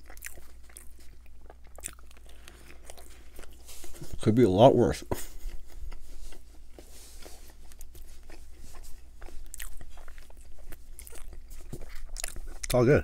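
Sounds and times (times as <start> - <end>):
person chewing bread: 0.0 - 13.0.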